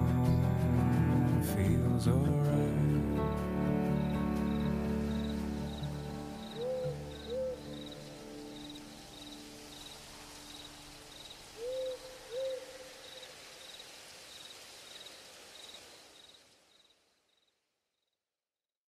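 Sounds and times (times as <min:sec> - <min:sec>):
crickets chirping: 0:03.9 - 0:18.2
soft hiss: 0:04.0 - 0:17.8
owl hooting: 0:06.4 - 0:08.8, 0:11.2 - 0:13.3.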